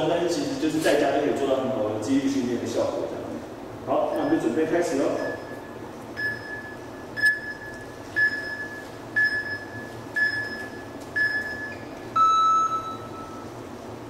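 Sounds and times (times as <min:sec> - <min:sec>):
longer lower beep: 0:04.1 - 0:13.5
short high beeps: 0:05.2 - 0:13.5.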